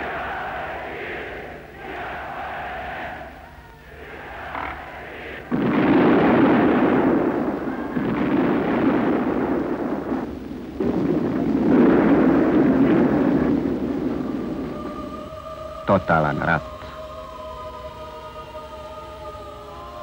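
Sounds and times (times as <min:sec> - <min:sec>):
rumbling: 0:04.0 - 0:15.7
heavy explosions: 0:04.4 - 0:15.1.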